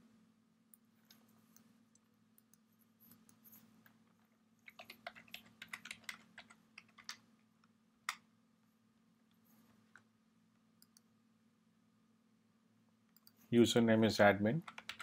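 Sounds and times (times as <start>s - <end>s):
faint steady hum: 0.0s - 15.0s
computer keyboard typing: 4.6s - 7.2s, 14.6s - 15.0s.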